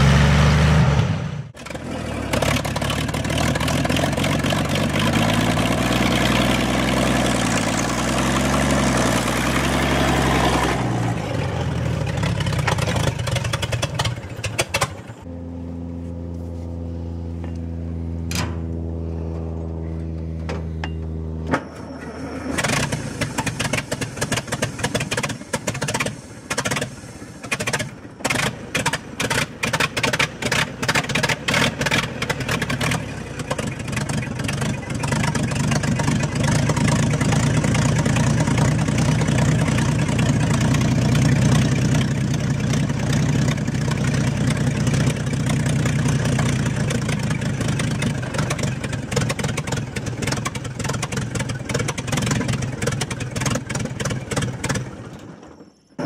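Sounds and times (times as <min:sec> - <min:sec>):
tractor engine sputtering and running: 0:01.4 - 0:56.0.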